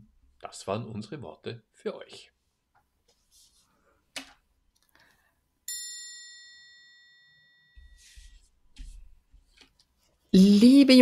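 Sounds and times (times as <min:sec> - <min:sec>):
bright bell-like chime: 0:05.7 - 0:08.2.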